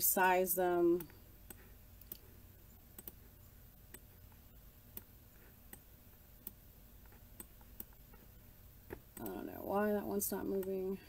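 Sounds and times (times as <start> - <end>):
faint low hum: 0.0 - 11.0
mouse buttons clicking: 0.9 - 8.2, 8.9 - 9.5.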